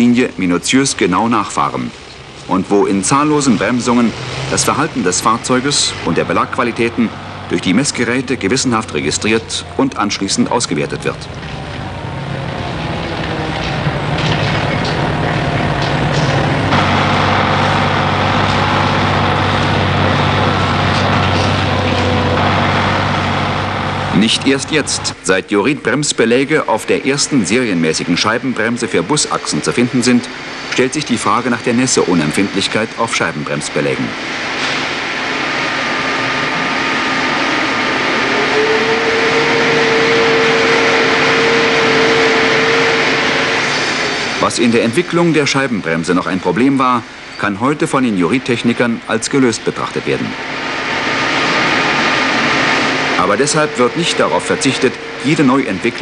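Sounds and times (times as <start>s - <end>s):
bus engine running: 0.0s - 47.4s, 48.0s - 56.0s
steady tone: 2.2s - 32.7s, 33.3s - 45.8s, 49.7s - 56.0s
rotating disc rushing hiss: 33.5s - 45.6s, 49.7s - 56.0s.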